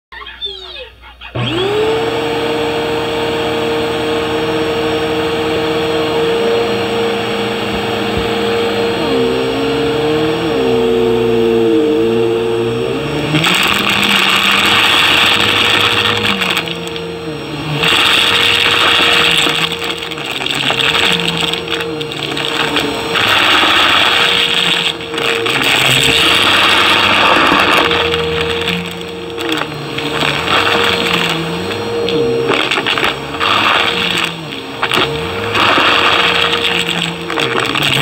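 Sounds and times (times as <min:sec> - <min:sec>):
vacuum cleaner running: 0:01.3 - 0:38.0
shells crunching and rattling: 0:17.8 - 0:38.0.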